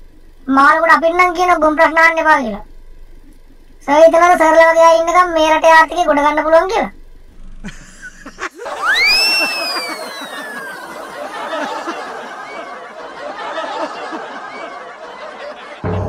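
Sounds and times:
canned audience laughter: 7.7s - 16.0s
rising and falling whistle effect: 8.6s - 12.9s.

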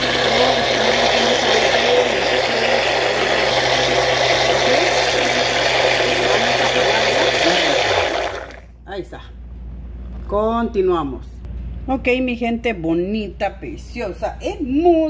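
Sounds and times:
blender whirring: 0.0s - 8.7s.

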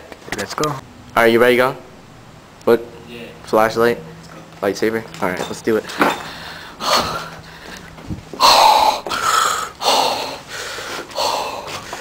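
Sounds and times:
person breathing hard: 6.1s - 12.0s.

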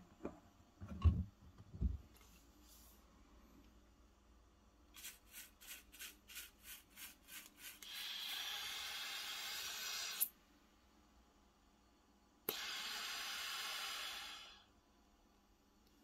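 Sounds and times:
air puffs through tubing: 5.0s - 10.4s, 12.4s - 14.7s
air hissing: 7.6s - 10.4s, 12.4s - 14.7s.

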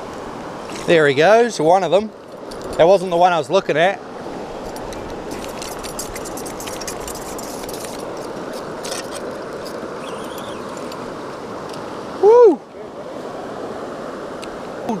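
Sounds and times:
river water rushing: 0.0s - 15.0s
fly reel clicking: 8.8s - 10.8s.

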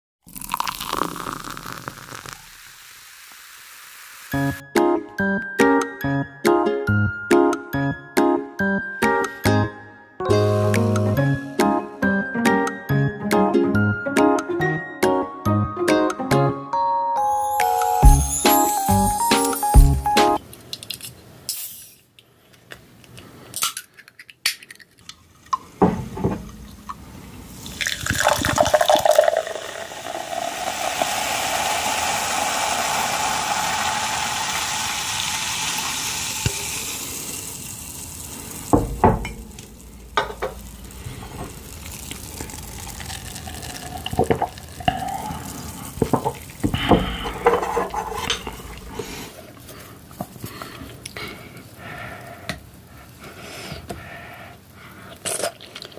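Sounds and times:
soda pouring and fizzing: 0.2s - 4.6s, 27.5s - 49.3s
spoon scraping ceramic bowl: 47.2s - 48.8s.

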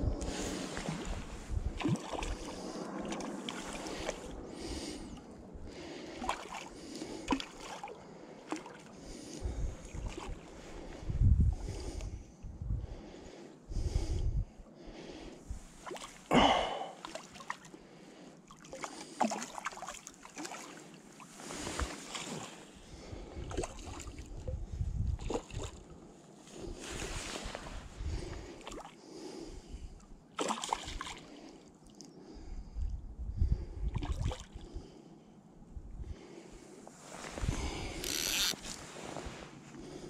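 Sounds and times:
wind buffeting microphone: 0.0s - 6.0s, 9.4s - 14.6s, 22.9s - 25.7s, 26.6s - 28.6s, 32.4s - 34.0s, 37.3s - 38.0s
water lapping and splashing: 0.0s - 11.8s, 15.6s - 32.9s, 33.9s - 35.0s.

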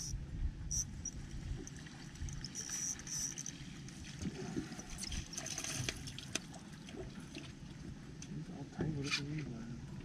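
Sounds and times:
water splashing and sloshing: 0.9s - 10.0s
low uneven rumble: 3.5s - 10.0s.

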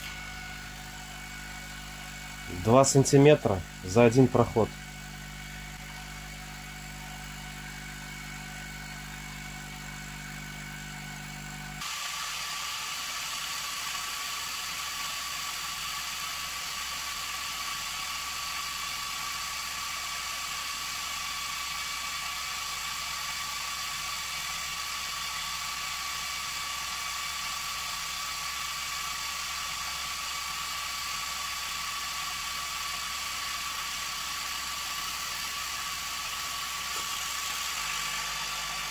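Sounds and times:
laser whine: 0.0s - 38.9s
air assist and fans hissing: 2.1s - 4.8s, 35.0s - 38.9s.

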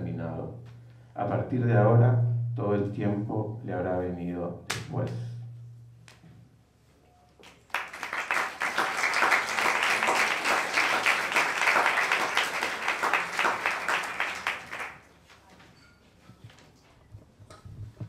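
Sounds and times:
audience applauding: 7.4s - 15.1s.

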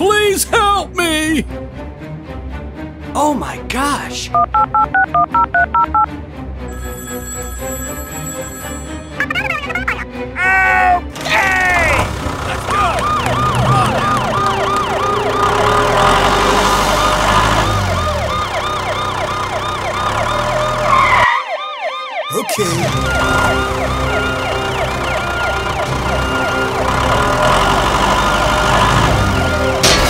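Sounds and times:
background music: 0.0s - 30.0s
electronic siren yelping: 11.8s - 29.8s.

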